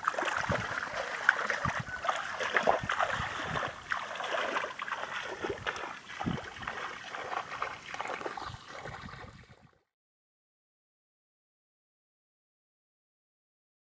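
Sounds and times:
bare feet splashing through mud: 0.0s - 9.7s
trickling water: 0.0s - 9.8s.

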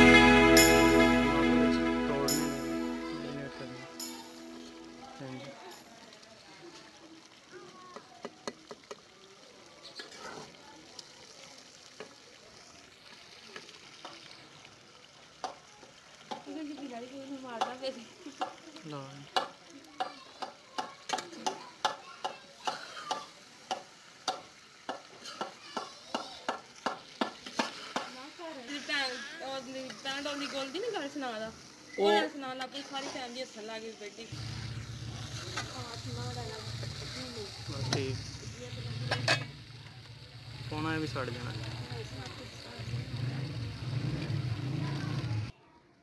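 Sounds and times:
oil sizzling: 0.0s - 45.5s
metal spatula scraping a pan: 38.9s - 39.6s.

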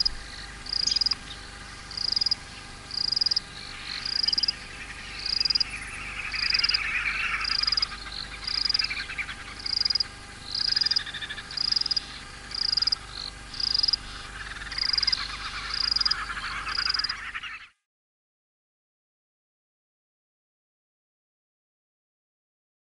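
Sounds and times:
trilling frog and insect chorus: 0.0s - 17.8s.

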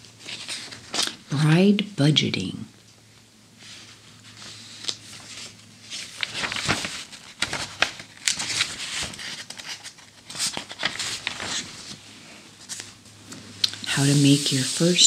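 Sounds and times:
magazine pages turning: 0.2s - 1.2s, 3.6s - 12.0s, 12.6s - 15.0s.

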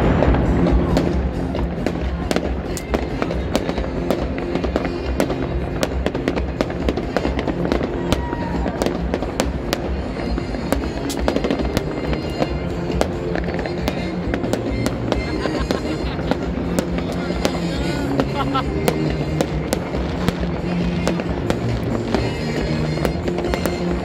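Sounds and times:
fireworks banging and crackling: 0.0s - 24.0s
music with low beat: 0.0s - 24.0s.

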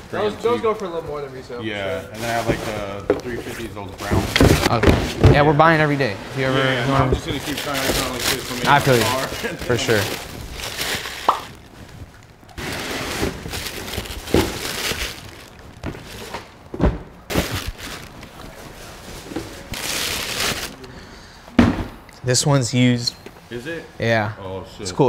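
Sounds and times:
cardboard boxes being handled: 2.2s - 5.5s, 6.9s - 20.8s
tissue paper crinkling: 7.2s - 16.4s, 17.3s - 20.9s.

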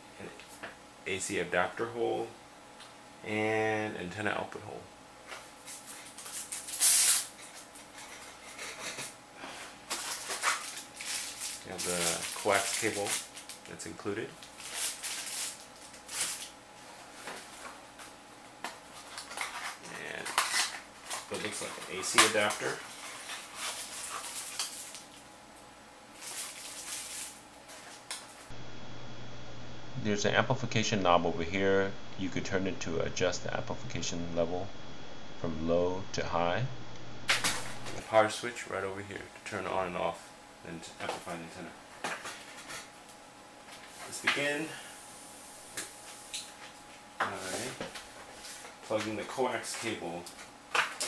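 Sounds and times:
plastic wrap crinkling: 9.9s - 16.5s, 19.0s - 25.2s, 26.1s - 28.3s.

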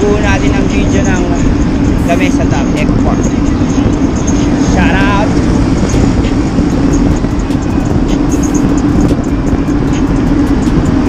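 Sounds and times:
wind and tyres rumbling: 0.0s - 11.0s.

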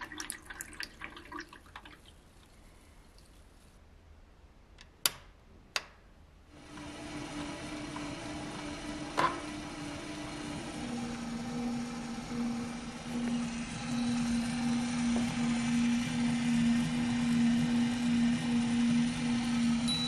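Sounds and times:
cordless drill motor humming: 6.6s - 20.0s.

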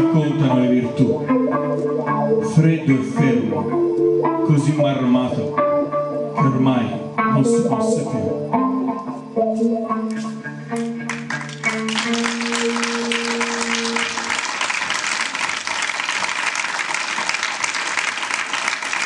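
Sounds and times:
electric guitar notes ringing: 0.0s - 15.5s
audience applause: 11.1s - 19.0s.

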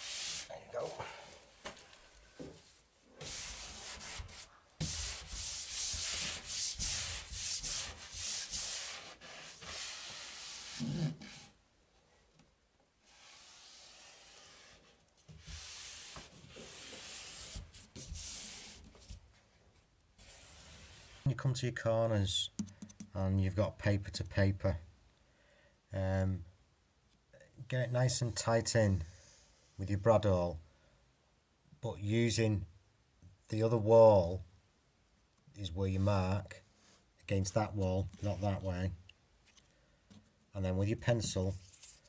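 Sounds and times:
paper rubbing and swishing on wall: 0.0s - 1.1s, 2.6s - 11.6s, 13.0s - 19.3s, 20.2s - 21.3s, 41.5s - 42.0s.

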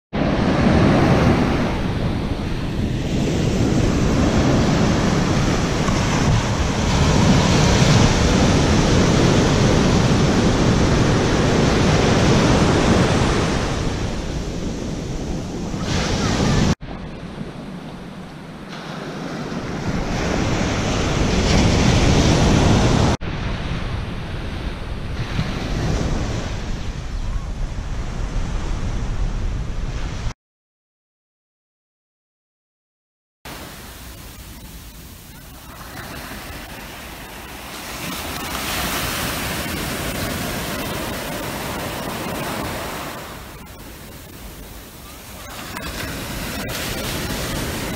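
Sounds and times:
wind rumbling on microphone: 0.1s - 30.4s, 33.5s - 47.9s
small waves breaking on beach: 0.2s - 23.7s, 33.5s - 47.9s.

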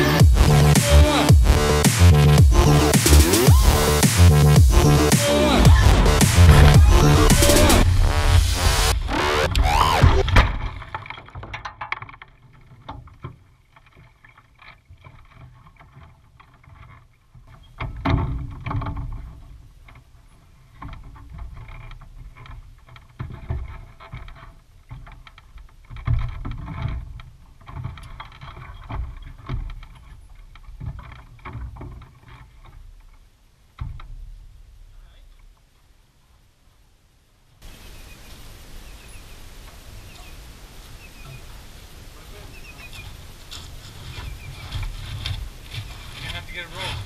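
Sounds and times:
rustling: 0.0s - 47.0s
knocks and thumps: 0.2s - 12.2s
airplane crash: 4.6s - 10.9s.

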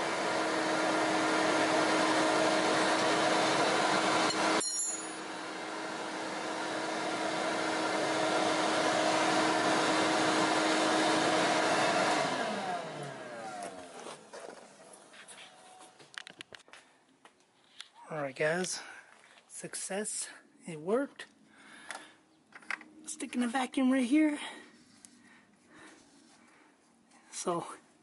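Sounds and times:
vacuum motor winding down: 0.0s - 4.6s, 5.2s - 15.0s
vacuum motor humming: 0.0s - 15.1s.

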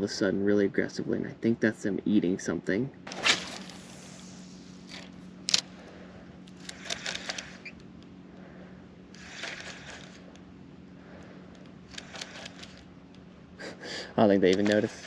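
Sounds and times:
faint steady hum: 0.0s - 15.0s
fishing reel click: 6.5s - 7.9s, 11.9s - 12.9s, 14.5s - 15.0s.

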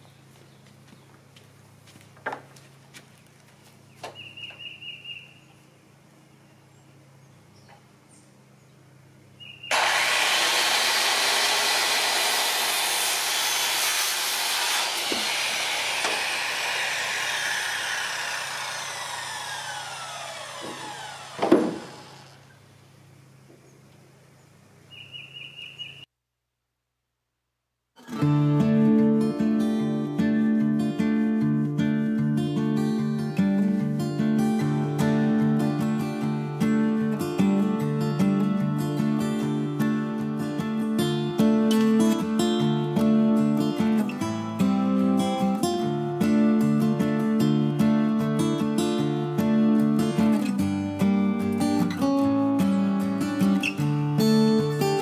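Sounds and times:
circular saw cutting plastic: 9.7s - 22.5s.

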